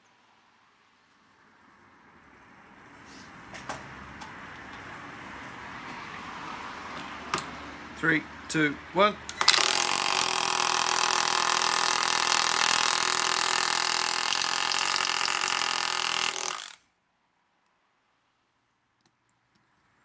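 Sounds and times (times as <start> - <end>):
nailer hammering nail into timber: 9.4 - 16.8.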